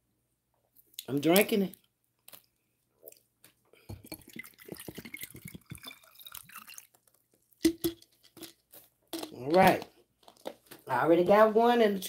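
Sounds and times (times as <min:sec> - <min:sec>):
gulping water from bottle: 0:03.8 - 0:07.0.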